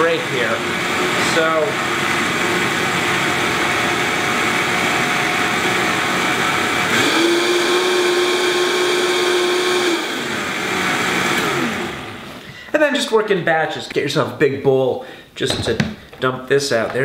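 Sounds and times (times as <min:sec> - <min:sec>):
blender motor running: 0:00.0 - 0:12.5.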